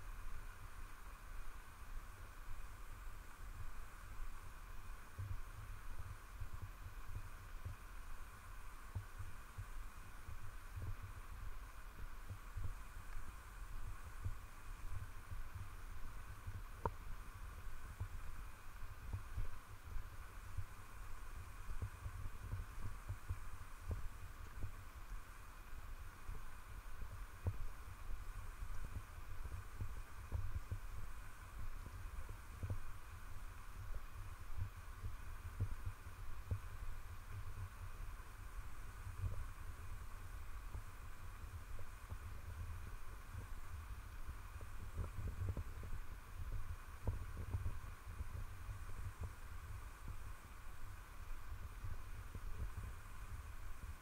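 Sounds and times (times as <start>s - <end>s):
faint steady hiss: 0.0s - 54.0s
wind rumble on microphone: 0.0s - 54.0s.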